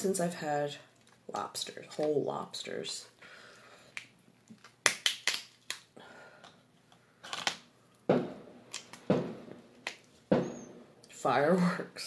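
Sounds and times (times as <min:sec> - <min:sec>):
lobster shell cracking: 0:03.8 - 0:06.0, 0:07.2 - 0:07.7.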